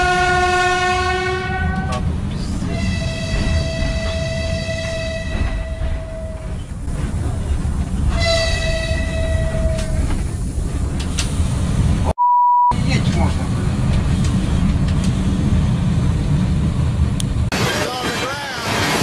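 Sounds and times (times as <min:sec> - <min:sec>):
train horn blasts: 0:00.0 - 0:02.0, 0:02.7 - 0:06.4, 0:08.2 - 0:09.9
low rumble of moving train: 0:00.0 - 0:12.1, 0:12.7 - 0:19.0
steady electronic beep: 0:12.2 - 0:12.8.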